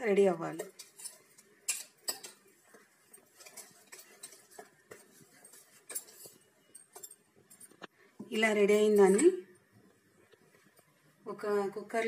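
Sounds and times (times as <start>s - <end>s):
wire whisk scraping metal bowl: 0.6s - 7.2s.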